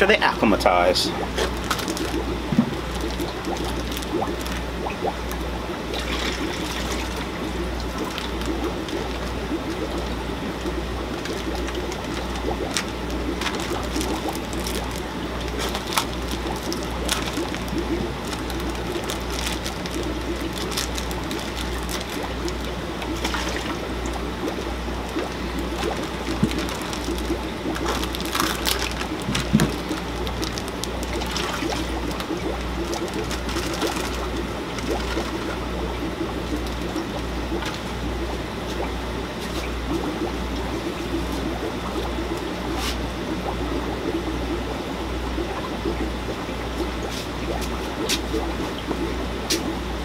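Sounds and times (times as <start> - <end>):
water trickling and splashing: 0.0 - 49.8
low hum: 0.8 - 50.0
plastic bags crinkling: 1.3 - 35.7.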